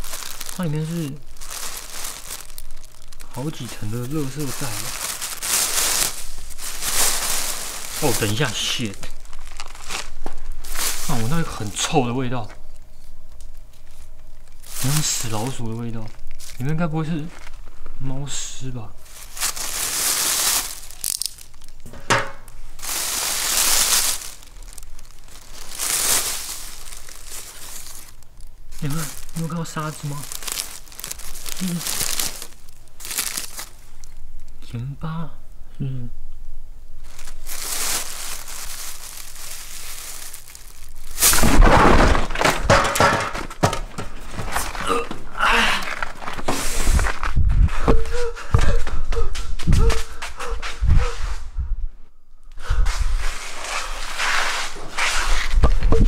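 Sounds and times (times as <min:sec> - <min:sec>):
sharp plastic crackle: 0:00.0 - 0:18.0, 0:19.0 - 0:34.6, 0:37.0 - 0:47.4
plastic bags rustling: 0:00.0 - 0:34.2, 0:37.0 - 0:47.5
loud clatter of thumps: 0:41.3 - 0:45.3.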